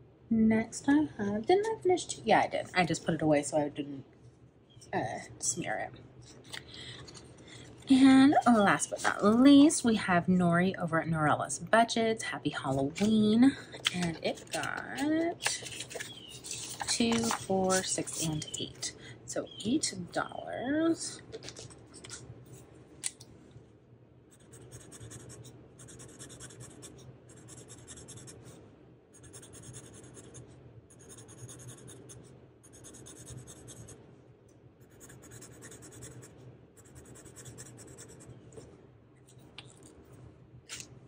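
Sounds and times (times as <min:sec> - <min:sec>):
marker scratching on paper: 0:14.2 - 0:18.5, 0:24.4 - 0:28.4, 0:29.2 - 0:34.0, 0:34.8 - 0:38.3.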